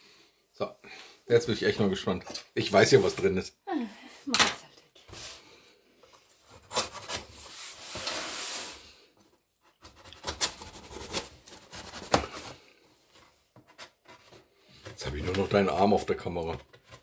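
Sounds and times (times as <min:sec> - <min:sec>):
knife scraping cardboard: 0:06.4 - 0:08.8, 0:09.6 - 0:12.7
knife slitting packing tape: 0:09.9 - 0:12.5.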